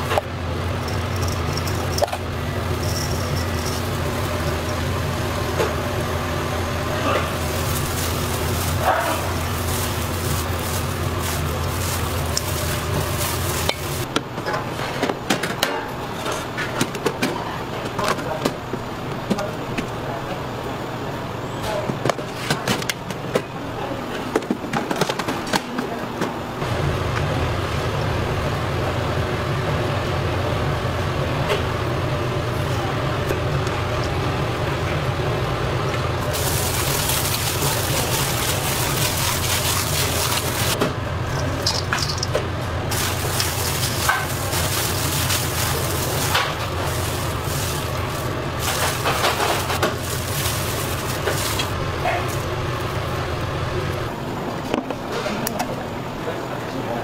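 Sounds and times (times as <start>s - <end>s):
food mixing in a bowl: 0.0s - 14.1s, 36.2s - 53.0s
steady low hum: 0.0s - 14.2s, 26.6s - 54.7s.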